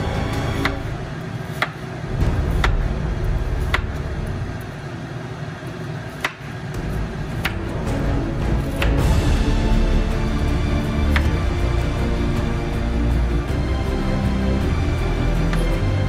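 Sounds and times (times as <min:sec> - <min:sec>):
sharp knocks: 0:01.6 - 0:04.5
low rumble: 0:02.0 - 0:05.3, 0:06.8 - 0:16.0.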